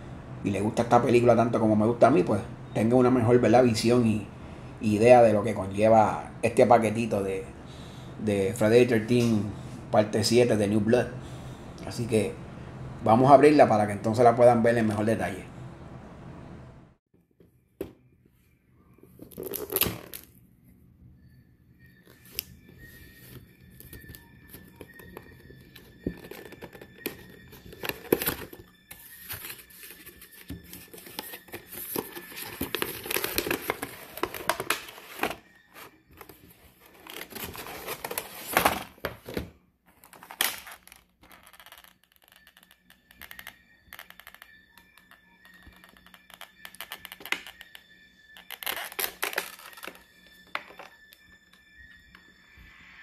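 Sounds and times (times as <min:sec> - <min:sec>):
plastic and cardboard crinkling: 0:24.7 - 0:39.4.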